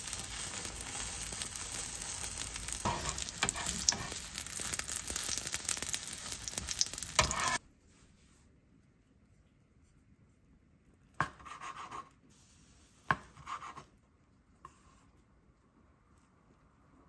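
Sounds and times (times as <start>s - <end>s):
utensil scraping a pan: 0.0s - 4.7s, 6.4s - 7.6s
food sizzling in a frying pan: 0.0s - 7.6s.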